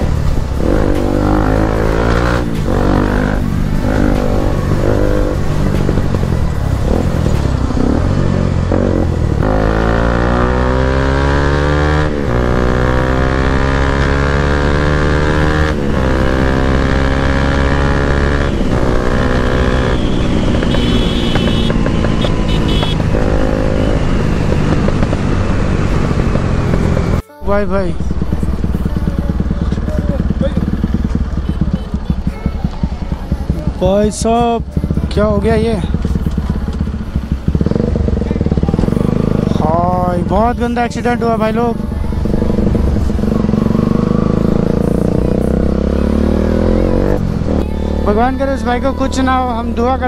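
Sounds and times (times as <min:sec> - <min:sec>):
motorcycle engine accelerating: 0:00.0 - 0:50.0.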